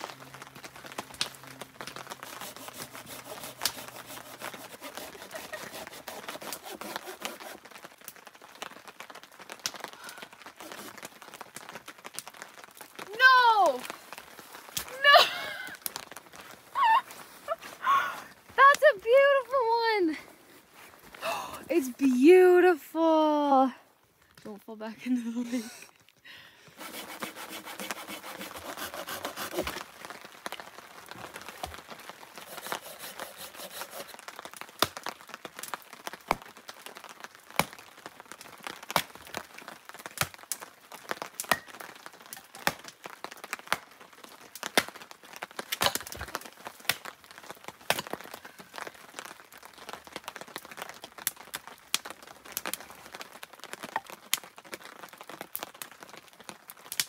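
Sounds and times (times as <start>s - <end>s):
hatchet splitting firewood: 1.8s - 7.8s, 10.6s - 11.1s, 26.8s - 29.9s, 31.6s - 34.9s, 41.4s - 41.8s, 45.7s - 46.5s
clatter of split wood pieces: 45.7s - 47.0s.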